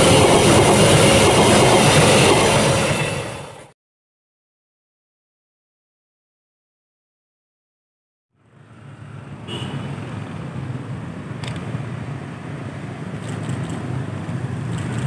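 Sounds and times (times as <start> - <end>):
cars and motorbikes passing: 8.4 - 15.0.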